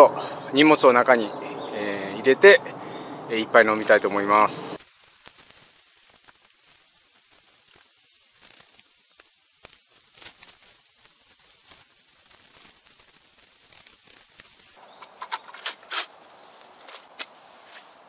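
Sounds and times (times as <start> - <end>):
tent fabric rustling: 4.8 - 14.8
gear clicking: 5.0 - 14.8.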